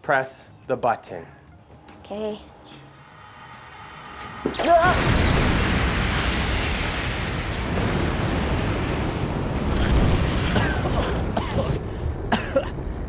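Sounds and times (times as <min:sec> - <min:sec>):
loud explosion blast with rumble: 0:04.7 - 0:13.0.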